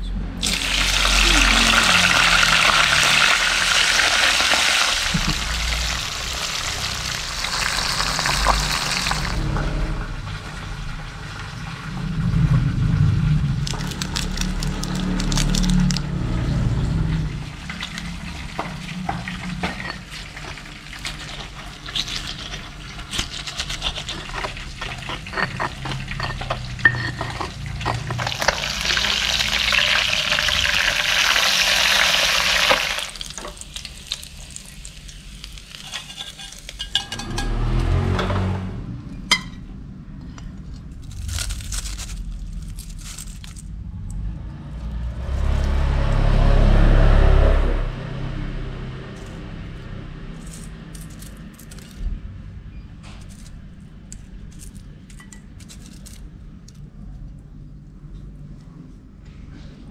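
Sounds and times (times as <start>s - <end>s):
stone pestle grinding in mortar: 17.9s - 28.9s.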